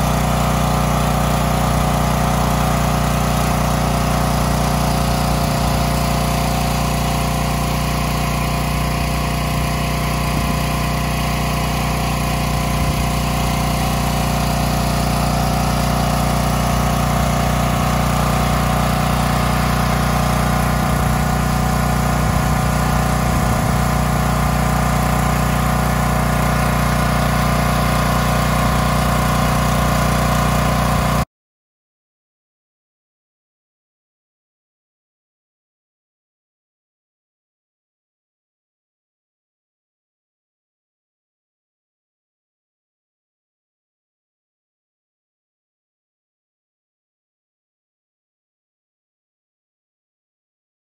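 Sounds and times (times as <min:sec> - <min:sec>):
portable generator running: 0:00.0 - 0:31.3.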